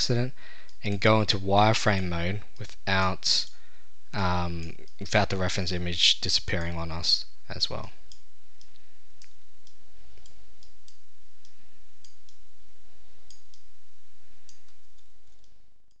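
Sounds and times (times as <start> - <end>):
steady low hiss: 0.0 - 16.0
computer mouse clicking: 8.0 - 12.4, 13.2 - 13.7.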